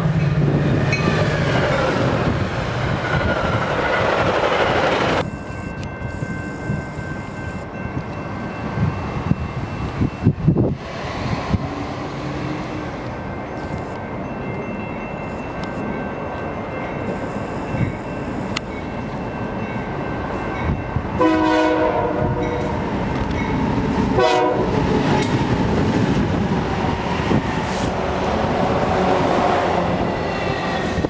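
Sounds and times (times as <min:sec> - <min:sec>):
locomotive engines rumbling: 0:00.0 - 0:31.0
train wheels on rails: 0:00.0 - 0:31.0
diesel locomotive horn blowing: 0:21.2 - 0:22.8, 0:24.1 - 0:24.9.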